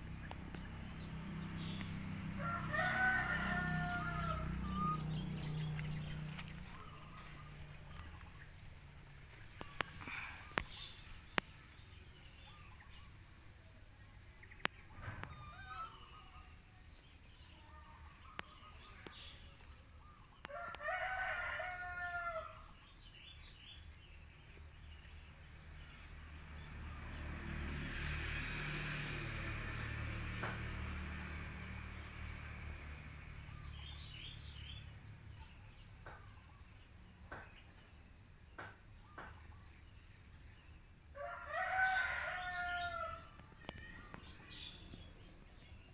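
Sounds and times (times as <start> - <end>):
rooster crowing: 2.3 - 5.5, 20.4 - 22.7, 41.2 - 44.6.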